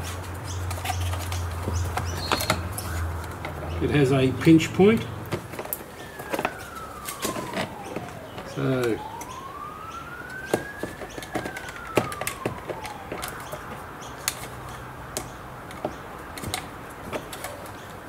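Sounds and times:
siren: 1.9s - 15.0s.

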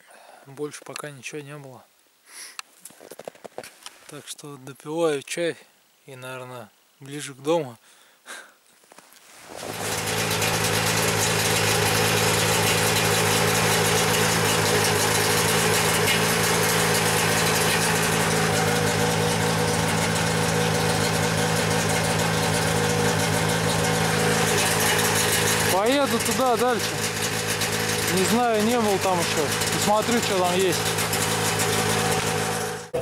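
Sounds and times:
snowmobile engine running: 9.5s - 33.0s.

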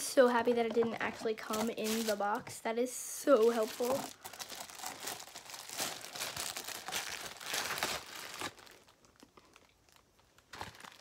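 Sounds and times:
plastic packaging crinkling: 0.4s - 2.4s, 3.4s - 11.0s.

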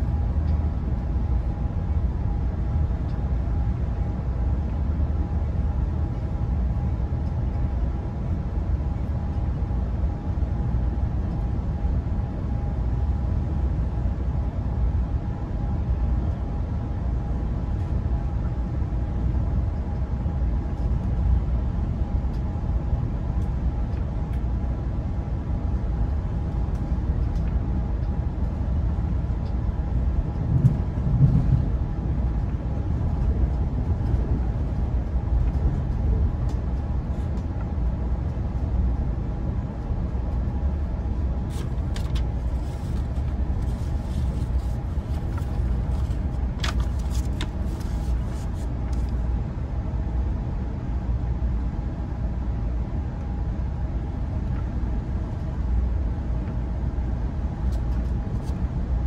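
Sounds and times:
faint steady hum: 0.0s - 59.0s
train rumble inside coach: 0.0s - 59.0s.

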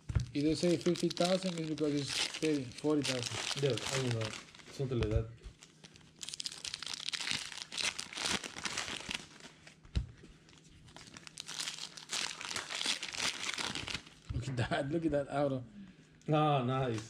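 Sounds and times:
foil wrappers crinkling and tearing: 0.3s - 9.8s, 10.4s - 14.3s.

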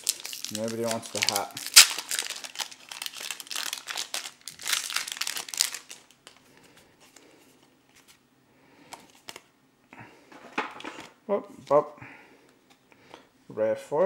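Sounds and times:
foil wrapper crinkling and tearing: 0.0s - 6.5s.

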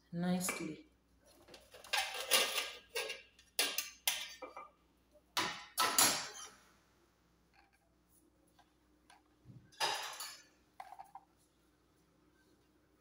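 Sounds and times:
metal pot and utensils scraping: 1.6s - 4.6s.

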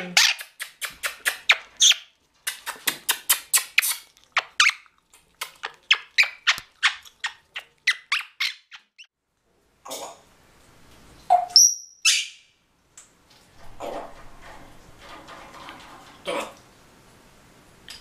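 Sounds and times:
parakeet squeaking: 0.1s - 2.1s, 3.4s - 4.8s, 5.9s - 9.1s, 11.3s - 12.4s.

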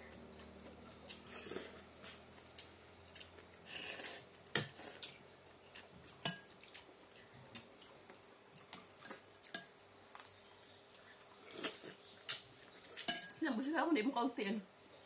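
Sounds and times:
cutlery clinking on bowls: 6.2s - 6.5s, 9.0s - 9.8s, 12.9s - 13.4s.

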